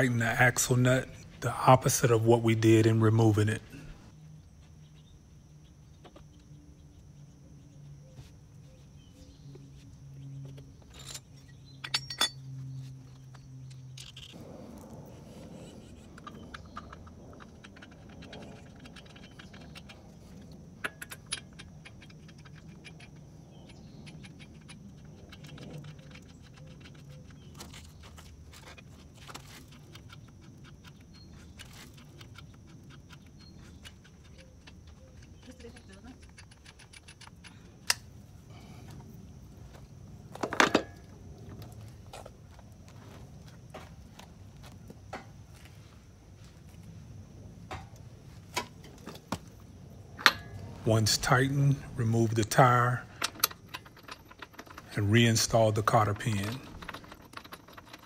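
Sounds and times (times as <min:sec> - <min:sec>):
lug nuts clinking and rattling: 0:10.5 - 0:14.9, 0:15.6 - 0:38.6, 0:40.3 - 0:41.7, 0:47.7 - 0:58.0.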